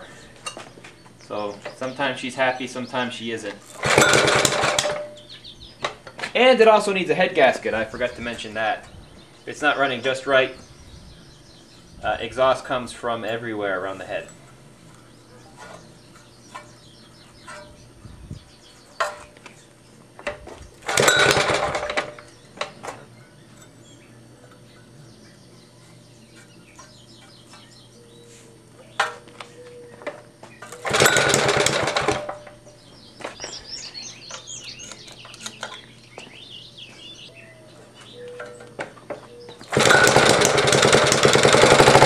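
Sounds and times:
mower engine cranking: 0:03.6 - 0:06.5, 0:20.2 - 0:23.0, 0:30.0 - 0:32.7, 0:39.6 - 0:42.0.

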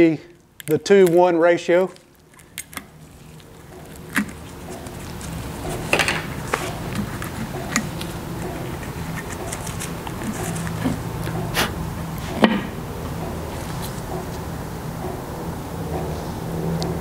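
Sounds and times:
low mechanical hum: 0:00.0 - 0:17.0
plastic cups clicking and tapping: 0:01.9 - 0:11.4.

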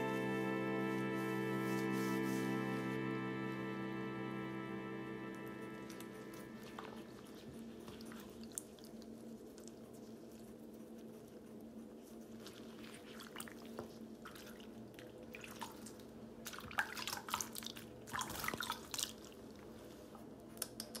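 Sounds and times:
low steady hum: 0:00.0 - 0:21.0
water trickling and splashing: 0:13.0 - 0:19.5.

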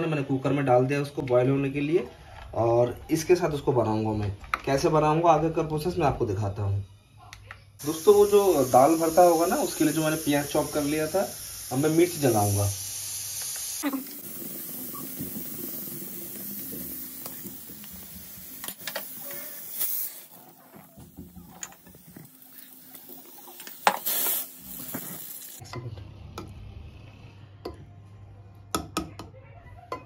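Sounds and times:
gas burner hissing: 0:07.8 - 0:25.6.

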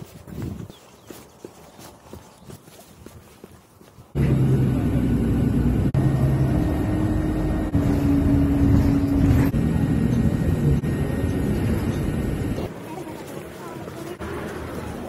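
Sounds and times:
car engine and road noise: 0:04.1 - 0:15.0.

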